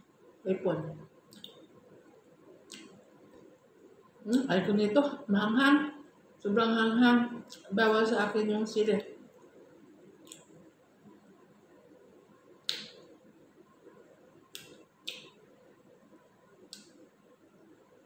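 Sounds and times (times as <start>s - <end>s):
eating clicks and smacks: 1.3s - 1.7s, 2.6s - 3.5s, 10.2s - 10.8s, 12.5s - 13.2s, 14.5s - 15.5s, 16.6s - 17.0s.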